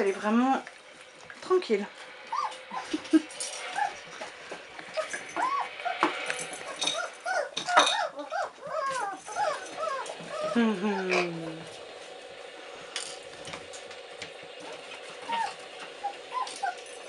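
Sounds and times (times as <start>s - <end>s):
puppies whimpering and squeaking: 2.2s - 11.7s, 14.6s - 17.0s.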